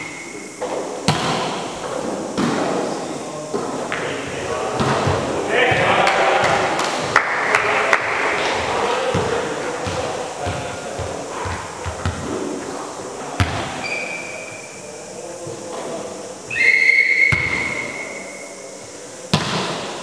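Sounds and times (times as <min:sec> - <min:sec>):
referee's whistle blasts: 0:16.5 - 0:18.6.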